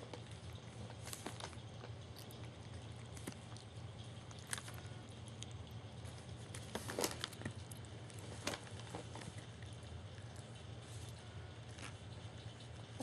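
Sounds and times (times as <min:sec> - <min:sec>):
steady low hum: 0:00.0 - 0:13.0
newspaper rustling and crinkling: 0:06.5 - 0:07.5.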